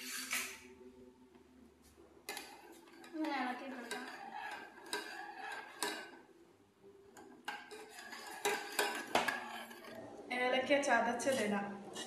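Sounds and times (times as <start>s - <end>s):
metal spoon scraping saucepan: 2.3s - 6.3s, 7.0s - 10.1s.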